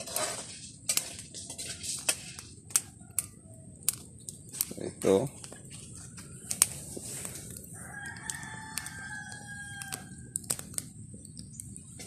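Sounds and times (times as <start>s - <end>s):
rooster crowing: 7.7s - 10.6s.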